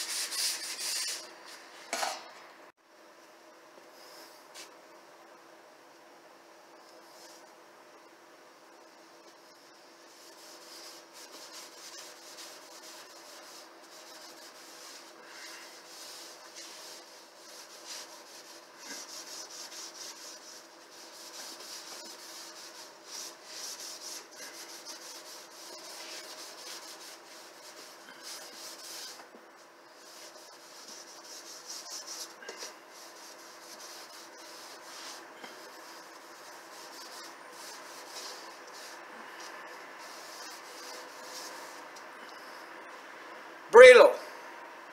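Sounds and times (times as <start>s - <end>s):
hand sanding wood: 10.1s - 42.0s.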